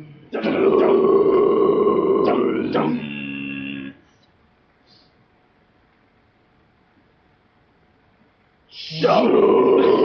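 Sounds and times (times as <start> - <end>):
man growling scream: 0.4 - 3.7, 9.0 - 10.0.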